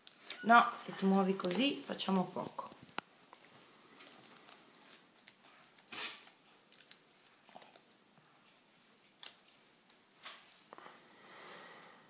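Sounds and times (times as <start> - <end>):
tape rustling: 1.4 - 7.9.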